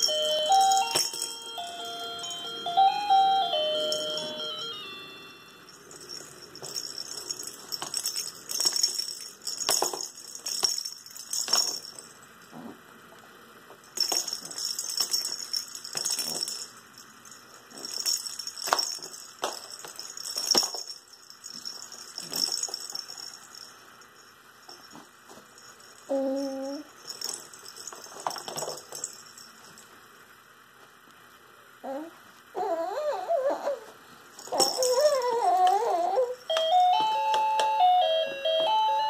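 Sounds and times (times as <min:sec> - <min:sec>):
plastic rattle shaking: 0:00.0 - 0:02.4, 0:05.7 - 0:12.2, 0:13.9 - 0:25.0, 0:25.6 - 0:29.9, 0:34.4 - 0:35.9.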